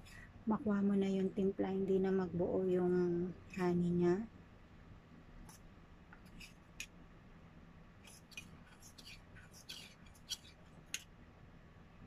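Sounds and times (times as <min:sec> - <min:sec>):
spoon scraping metal cup: 0:08.1 - 0:10.6.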